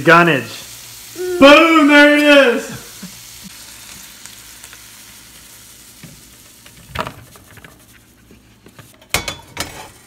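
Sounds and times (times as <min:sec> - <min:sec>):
shrimp sizzling in a skillet: 0:00.0 - 0:10.0.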